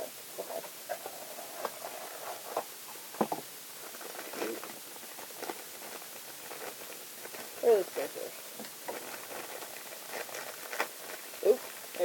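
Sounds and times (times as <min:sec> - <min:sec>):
packaging rustling: 0:03.8 - 0:07.8, 0:08.8 - 0:12.0.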